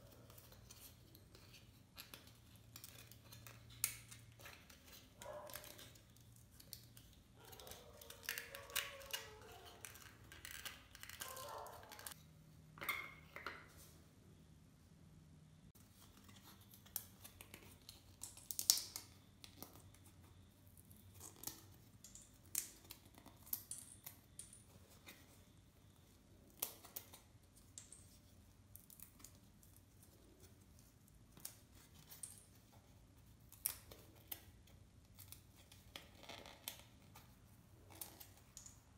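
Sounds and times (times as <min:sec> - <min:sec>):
foam puzzle pieces clicking: 0:00.2 - 0:12.2.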